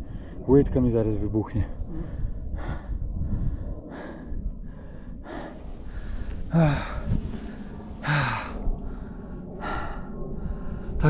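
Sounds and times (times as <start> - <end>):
person breathing hard: 1.8 - 11.0
voiced gasps: 1.9 - 10.1.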